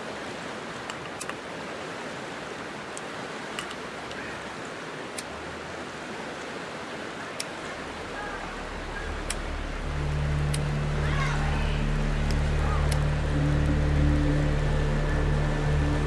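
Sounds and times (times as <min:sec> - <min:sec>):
creek water flowing: 0:00.0 - 0:16.0
low rumble: 0:07.7 - 0:16.0.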